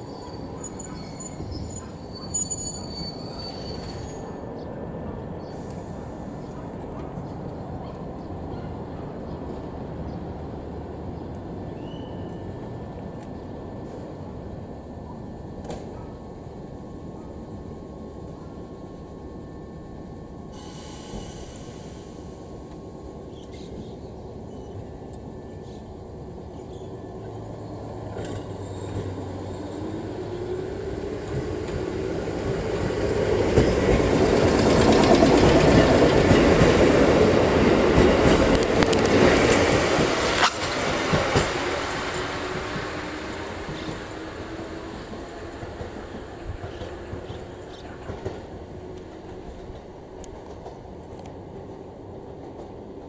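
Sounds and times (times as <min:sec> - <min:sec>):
train wheels on rails: 0:20.5 - 0:53.0.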